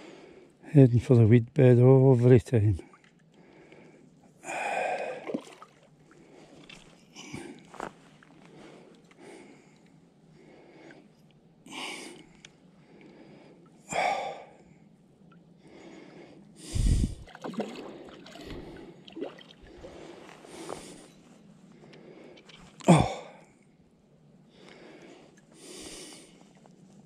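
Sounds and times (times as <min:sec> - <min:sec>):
man breathing sharply through nose: 0:15.6 - 0:19.0, 0:19.7 - 0:22.6, 0:24.6 - 0:26.4.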